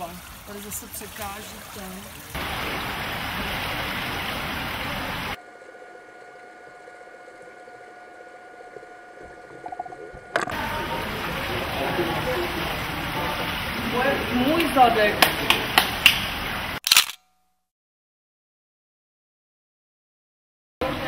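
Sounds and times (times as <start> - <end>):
pool water trickling and sloshing: 0.0 - 16.8
faint steady hum: 2.4 - 14.1.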